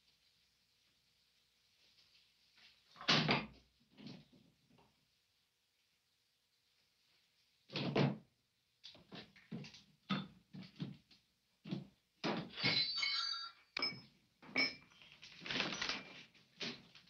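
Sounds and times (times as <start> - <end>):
short ringing clinks: 12.6 - 14.9.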